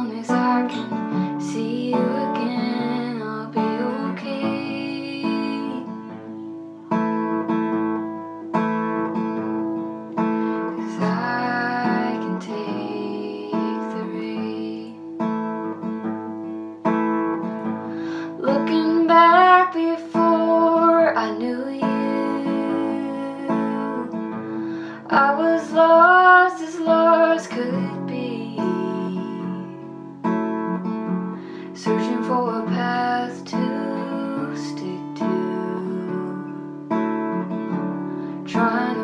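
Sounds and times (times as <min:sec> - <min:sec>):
young woman singing: 0:00.0 - 0:06.5, 0:10.5 - 0:15.5, 0:17.7 - 0:30.0, 0:31.6 - 0:39.0
acoustic guitar strumming chords: 0:00.0 - 0:39.0.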